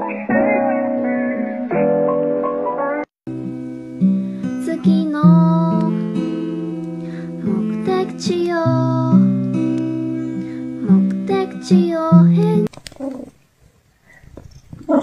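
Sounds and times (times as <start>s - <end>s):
plucked acoustic guitar: 0.1s - 12.7s
person singing: 4.4s - 12.7s.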